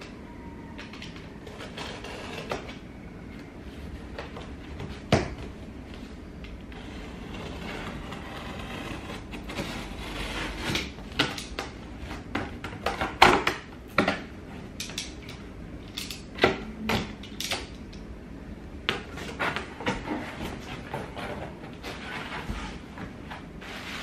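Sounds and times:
cardboard scrapes and rustles: 0:06.7 - 0:11.0, 0:19.1 - 0:24.0
box cutter cutting cardboard: 0:06.7 - 0:13.6.

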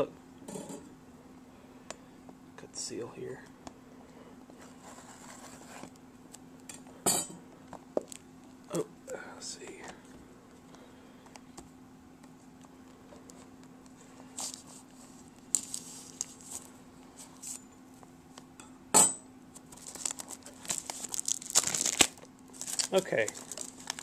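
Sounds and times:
plastic wrap crinkling: 0:14.3 - 0:17.5, 0:19.6 - 0:24.0.

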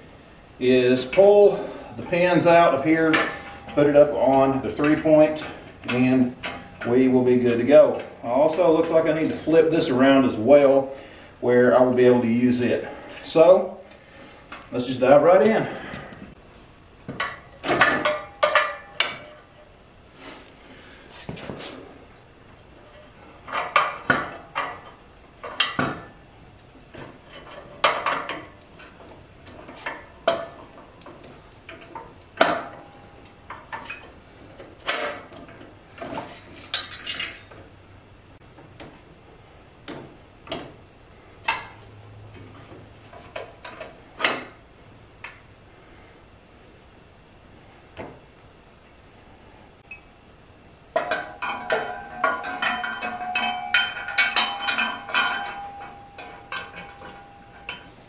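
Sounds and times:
metal hitch clanking on concrete: 0:02.5 - 0:08.1, 0:17.2 - 0:19.5, 0:51.0 - 0:58.0.

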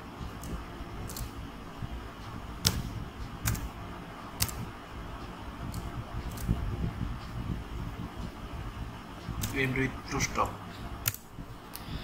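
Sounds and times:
low room hum: 0:00.0 - 0:12.0
computer keyboard keystrokes: 0:00.4 - 0:01.3, 0:03.4 - 0:03.7, 0:04.4 - 0:04.6.

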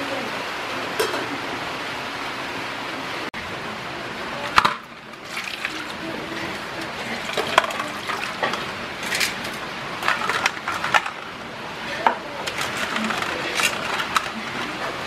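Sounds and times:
water sloshing in metal bowl: 0:05.0 - 0:11.3.

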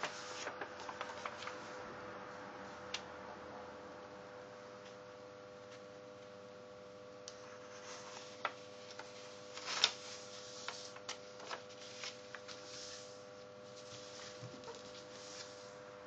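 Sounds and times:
paper rustling and crinkling: 0:00.0 - 0:01.8, 0:07.5 - 0:15.8.

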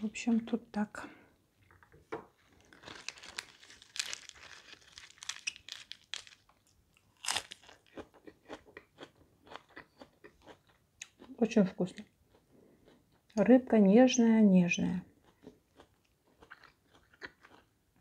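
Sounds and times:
crunchy chewing: 0:02.4 - 0:11.3, 0:15.2 - 0:17.7
lettuce leaves crunching: 0:02.6 - 0:07.8.

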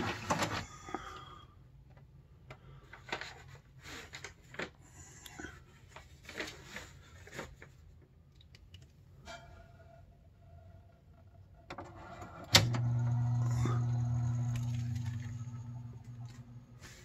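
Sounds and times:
faint low hum: 0:08.3 - 0:17.0.

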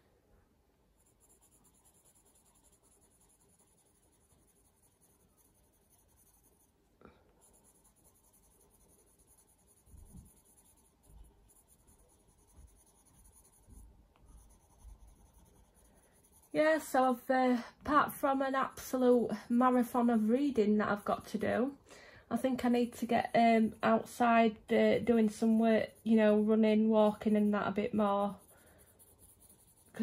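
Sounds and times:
pencil scratching on paper: 0:01.0 - 0:21.7, 0:22.4 - 0:30.0.

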